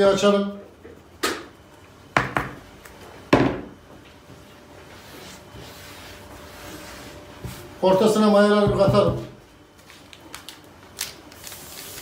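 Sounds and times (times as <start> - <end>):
hand rubbing in flour: 4.5 - 8.9.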